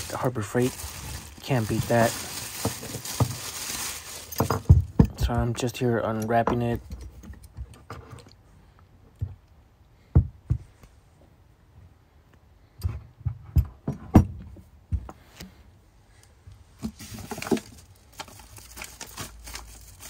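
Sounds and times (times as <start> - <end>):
plastic wrapping crinkling: 0.0 - 4.9, 16.9 - 20.0.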